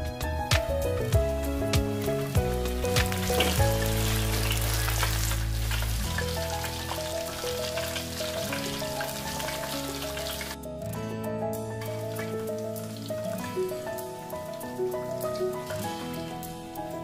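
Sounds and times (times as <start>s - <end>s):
background music: 0.0s - 17.0s
chicken deep-frying in oil: 0.9s - 10.6s, 11.8s - 17.0s.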